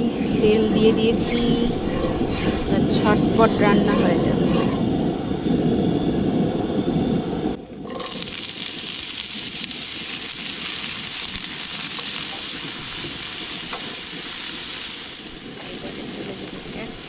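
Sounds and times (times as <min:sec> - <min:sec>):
low rumbling: 0:00.0 - 0:17.0
potatoes sizzling in hot oil: 0:07.9 - 0:17.0.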